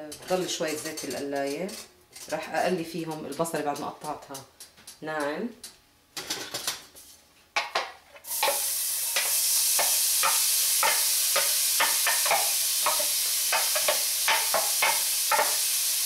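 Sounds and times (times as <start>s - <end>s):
onions sizzling in oil: 8.2s - 16.0s.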